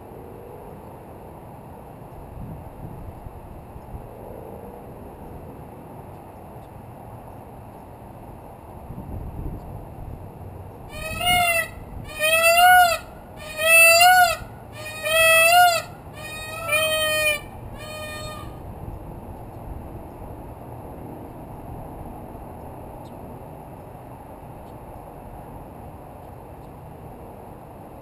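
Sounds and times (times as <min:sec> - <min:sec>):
peacock calling: 0:10.9 - 0:18.6.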